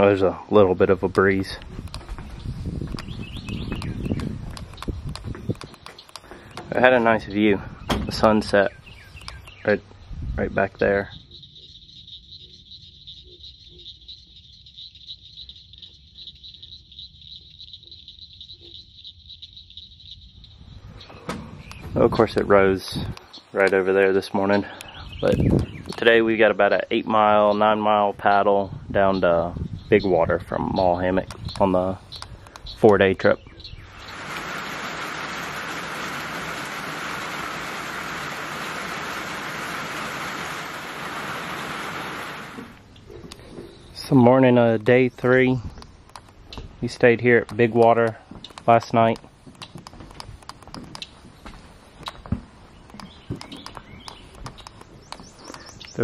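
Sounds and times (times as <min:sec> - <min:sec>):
insects trilling: 0:00.0 - 0:09.8, 0:10.6 - 0:27.6, 0:30.6 - 0:56.0
frog calls: 0:10.8 - 0:21.9
heavy rain on water and dock: 0:33.8 - 0:42.9.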